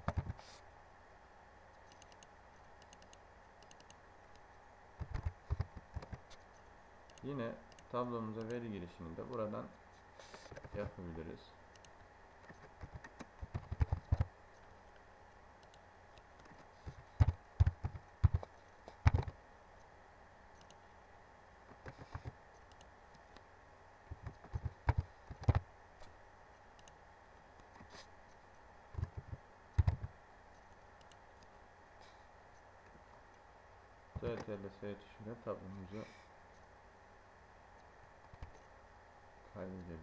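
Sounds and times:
keyboard typing clicks: 1.8 - 8.6, 11.7 - 14.7, 20.6 - 20.8, 21.7 - 23.4, 24.1 - 25.6, 29.0 - 31.5.

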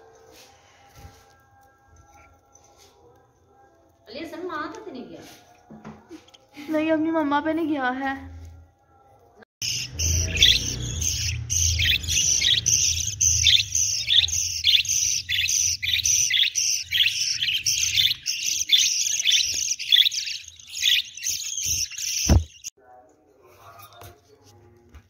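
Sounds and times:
budgerigars chirping: 9.6 - 22.7.

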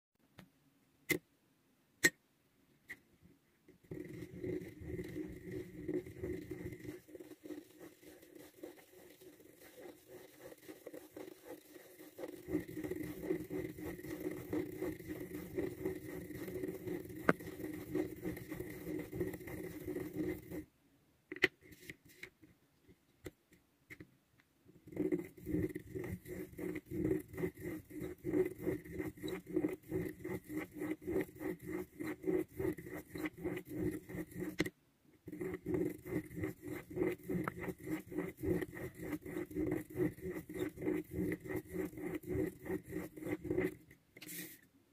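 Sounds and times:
plastic gear wheel scratching and clicking: 3.9 - 20.6, 24.9 - 44.4.

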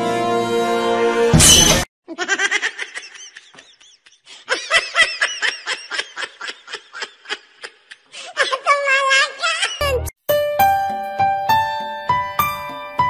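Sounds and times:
high-pitched laughter: 2.1 - 10.1.

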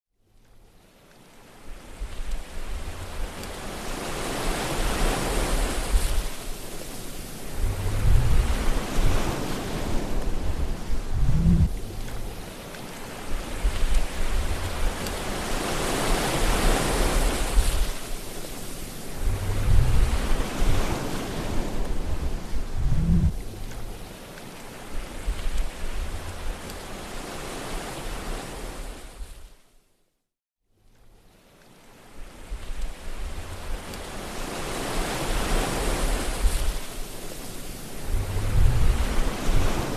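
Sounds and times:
wind rushing over microphone: 1.7 - 24.2, 24.9 - 29.5, 32.3 - 39.9.

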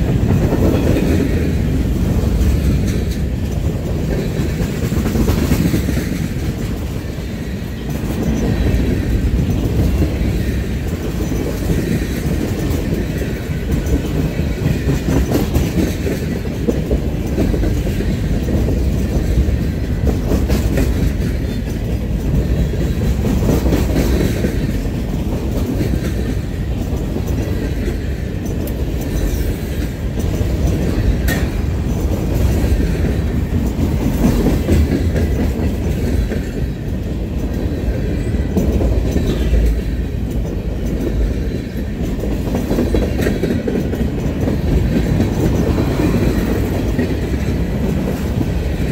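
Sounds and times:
train wheels rumbling on rails: 0.0 - 48.9.

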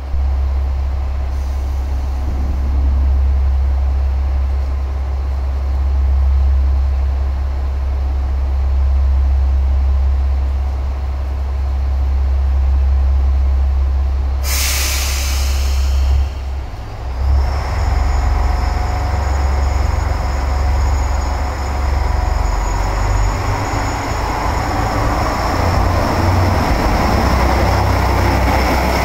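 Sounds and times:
diesel railcar idling: 0.0 - 29.0
air brake hiss: 1.3 - 2.6, 14.4 - 16.9.

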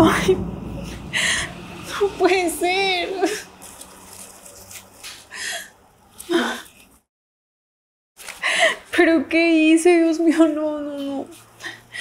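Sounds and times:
woman sniffling and sobbing: 8.3 - 8.9.

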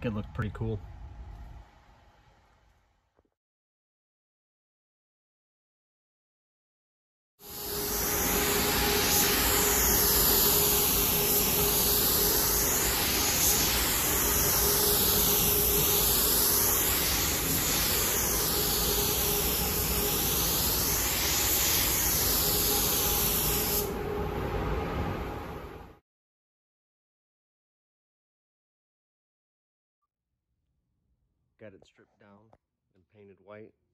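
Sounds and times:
paint spray gun hissing: 7.4 - 24.0.

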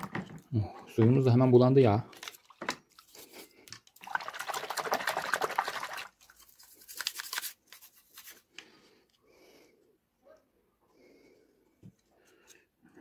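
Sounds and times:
toothbrush scrubbing plastic: 4.2 - 8.4.

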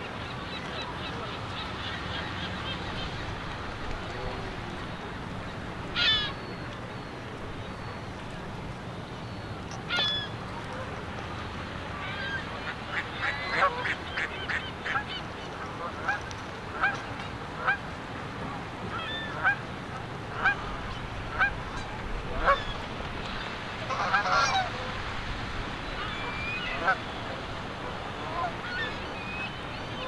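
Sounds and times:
geese honking: 12.1 - 15.2, 18.9 - 19.6, 20.3 - 22.8, 23.8 - 24.9, 26.0 - 27.1, 28.2 - 29.0.

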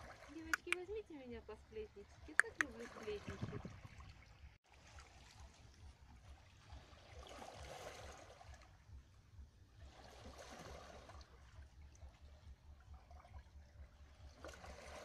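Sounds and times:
small waves lapping on rocks: 2.4 - 8.8, 9.8 - 11.7, 14.0 - 15.0.

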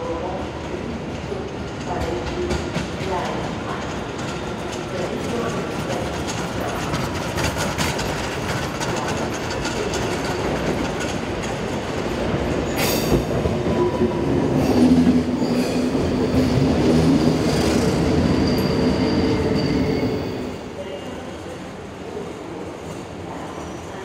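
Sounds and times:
train running hum: 0.0 - 24.0
train wheels clicking over rail joints: 4.1 - 13.4.

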